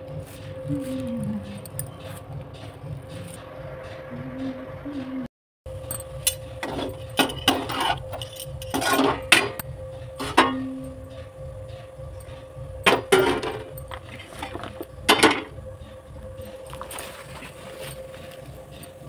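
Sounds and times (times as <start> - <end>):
metal spatula scraping a pan: 6.6 - 9.6.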